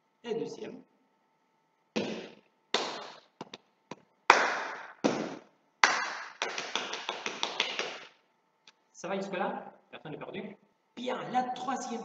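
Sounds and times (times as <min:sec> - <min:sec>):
fast slaps on thighs: 0:02.0 - 0:08.2
hand claps and slaps: 0:02.0 - 0:08.2.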